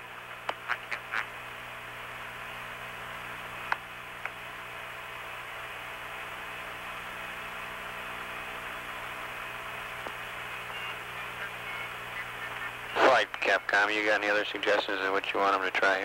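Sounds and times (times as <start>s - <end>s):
radio hiss and hum: 0.0s - 16.0s
radio clicks: 0.4s - 1.3s, 10.0s - 13.9s, 14.5s - 15.1s.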